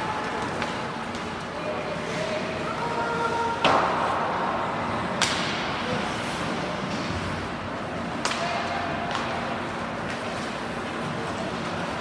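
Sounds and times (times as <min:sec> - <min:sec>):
hockey stick striking puck: 0:03.6 - 0:04.3, 0:05.2 - 0:05.8, 0:08.2 - 0:09.4.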